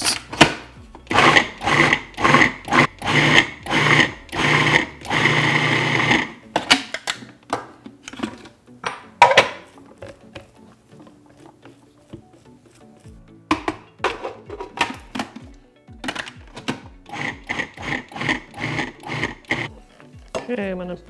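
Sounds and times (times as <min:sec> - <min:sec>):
food processor motor bursts: 0:01.1 - 0:06.4, 0:17.0 - 0:19.7.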